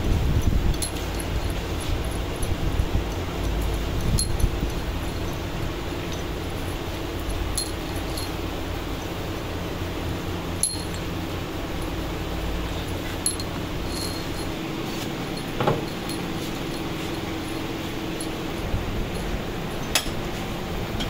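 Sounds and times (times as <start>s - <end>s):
mechanical hum: 0.0s - 21.0s
metallic clinks of bolts: 6.0s - 8.4s, 10.6s - 11.1s, 13.2s - 14.6s, 15.2s - 20.4s.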